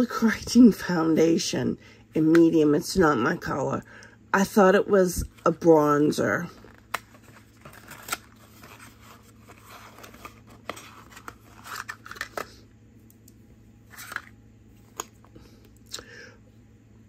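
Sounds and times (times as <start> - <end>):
package clicks and rustling: 6.6 - 12.6, 13.9 - 14.3.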